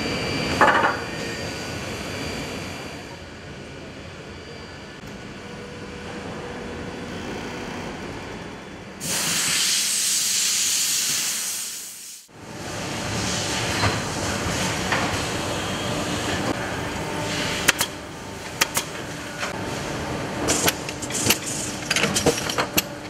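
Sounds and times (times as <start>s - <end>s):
workshop machinery running: 0.0s - 9.5s, 12.3s - 23.0s
loud hiss: 9.0s - 12.3s.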